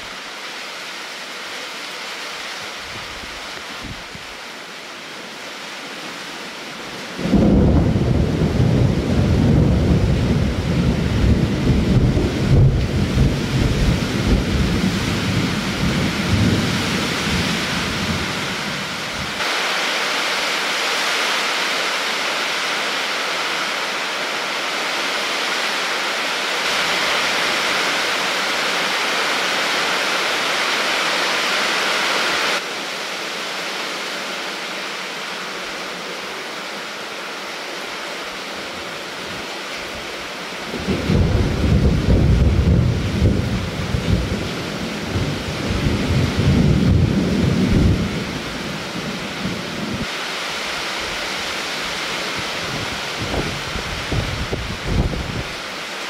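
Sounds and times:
rain hiss: 0.0s - 56.0s
thunder rumbling: 7.2s - 19.4s, 40.7s - 48.4s.

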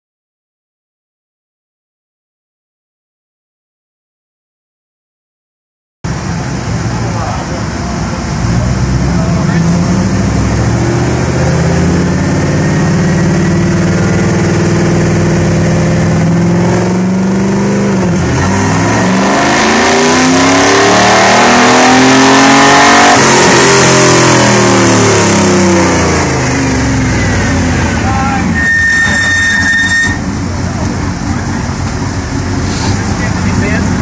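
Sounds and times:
car engine revving on dyno: 6.1s - 28.6s.

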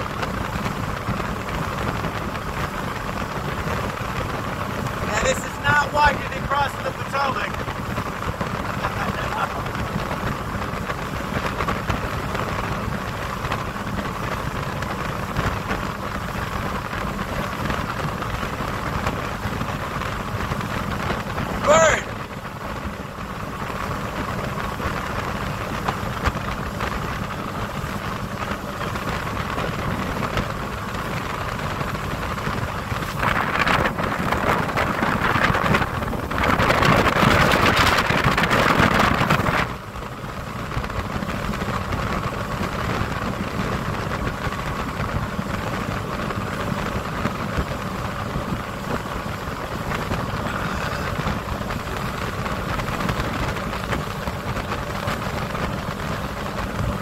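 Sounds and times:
motorboat engine hum: 0.0s - 57.0s
water rushing past hull: 0.0s - 57.0s
wind on microphone: 0.0s - 57.0s.

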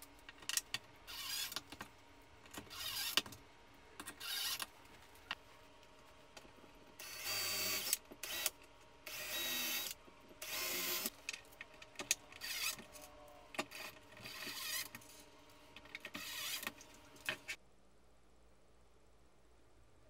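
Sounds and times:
cordless drill driving screws: 1.1s - 1.6s, 2.7s - 3.2s, 4.2s - 4.6s, 7.0s - 11.1s, 12.4s - 12.8s, 13.7s - 14.9s, 16.1s - 16.8s.

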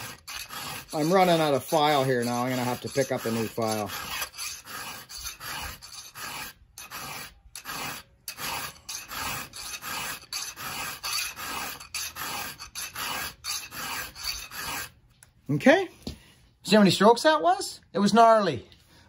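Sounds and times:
file rasping on chainsaw chain: 0.0s - 14.9s.

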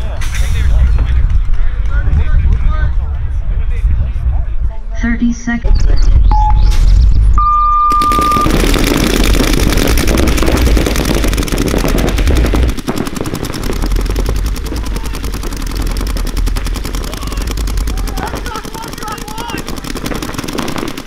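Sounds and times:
high electronic beep: 5.0s - 8.6s
paintball markers firing rapidly: 8.0s - 21.0s.

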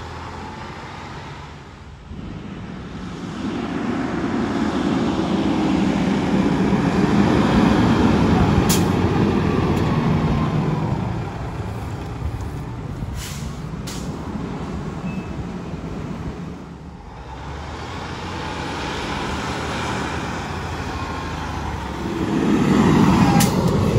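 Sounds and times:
fire engine diesel engine: 0.0s - 23.9s.

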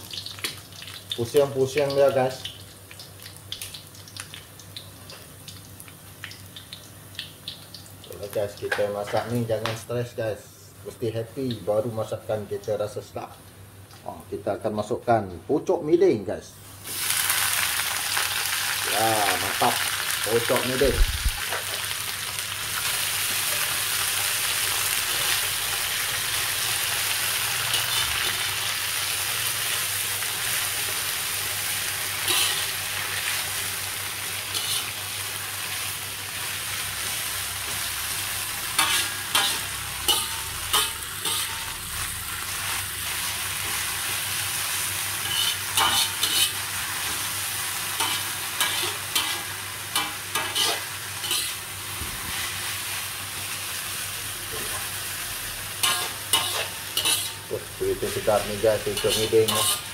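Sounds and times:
frying in hot oil: 0.0s - 10.2s, 10.8s - 15.4s, 16.6s - 59.9s
metal spatula scraping wok: 27.3s - 28.5s, 32.2s - 32.7s, 34.5s - 35.0s, 38.7s - 41.8s, 45.2s - 47.2s, 48.0s - 51.6s, 55.8s - 59.9s.

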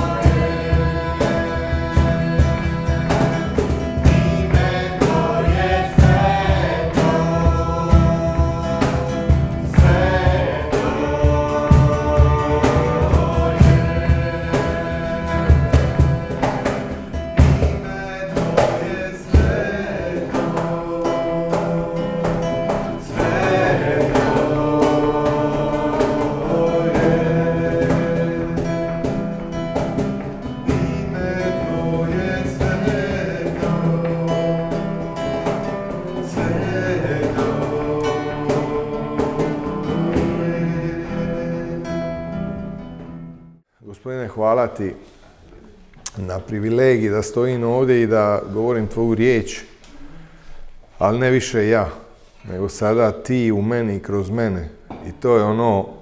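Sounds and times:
men and woman singing together: 0.0s - 42.5s
strummed acoustic guitar: 0.0s - 43.6s.

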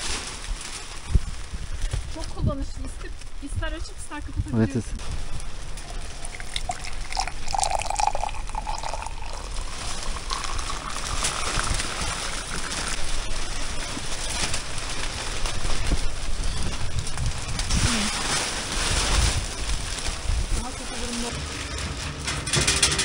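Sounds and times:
tea pouring into glass mug: 5.8s - 13.0s.

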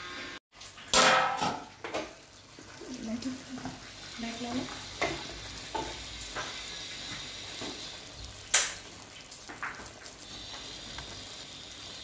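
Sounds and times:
rice sizzling in a pot: 0.0s - 12.0s.

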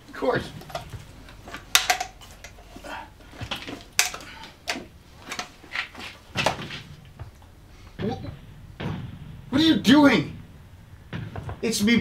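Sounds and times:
metallic clicks and clanks: 0.0s - 8.0s.

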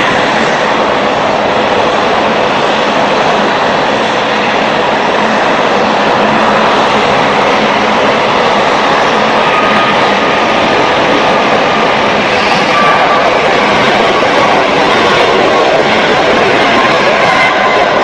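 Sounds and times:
jet engines at takeoff thrust: 0.0s - 18.0s.

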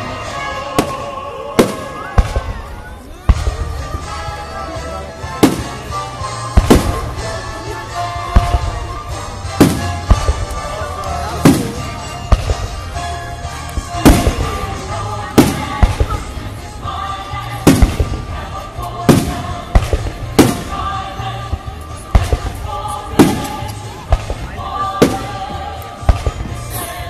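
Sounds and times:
music playing: 0.0s - 27.0s.

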